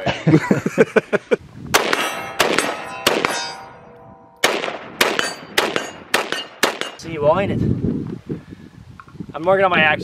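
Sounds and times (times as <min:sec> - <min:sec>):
rifle shots: 0:01.7 - 0:03.7, 0:04.4 - 0:07.0
steel targets clanging: 0:01.9 - 0:04.3, 0:05.2 - 0:07.0.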